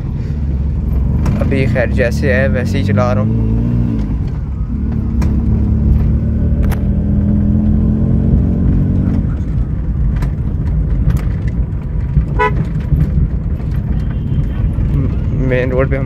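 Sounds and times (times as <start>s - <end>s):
car engine running: 0.0s - 16.0s
low rumble: 0.0s - 16.0s
car horn toot: 12.3s - 12.7s, 13.9s - 14.8s.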